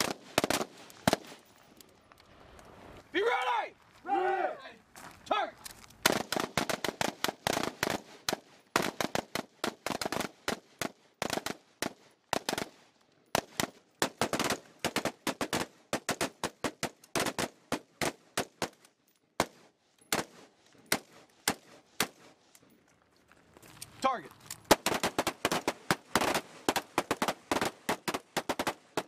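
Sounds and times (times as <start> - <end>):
rifle shots: 6.0 - 12.8, 24.7 - 29.0.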